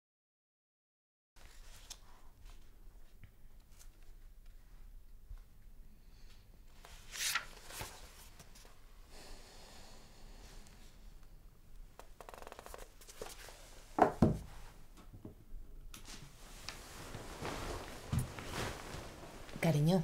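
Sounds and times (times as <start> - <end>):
book pages turning: 6.9 - 8.7, 12.0 - 13.7
bedclothes rustling: 16.0 - 20.0.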